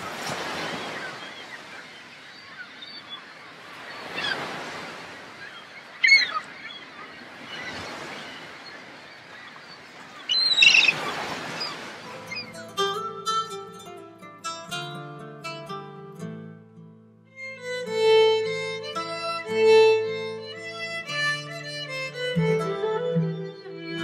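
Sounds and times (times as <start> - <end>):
seabirds calling: 0.0 - 13.6, 17.9 - 24.0
surf washing on shore: 0.0 - 13.7.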